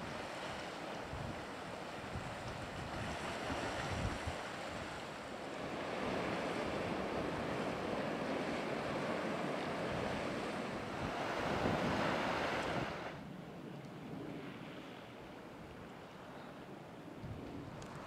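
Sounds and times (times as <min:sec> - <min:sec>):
surf washing over rocks: 0:00.0 - 0:13.3
wind on microphone: 0:00.0 - 0:13.3, 0:17.2 - 0:18.0.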